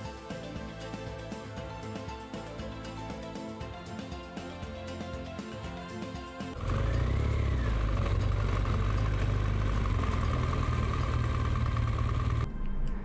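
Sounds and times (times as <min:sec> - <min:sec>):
motorcycle engine running: 0:06.5 - 0:12.5.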